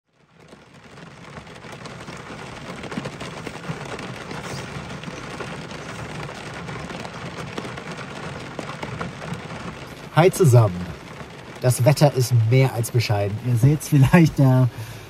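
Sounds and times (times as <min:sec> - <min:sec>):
heavy rain: 0:00.1 - 0:15.0.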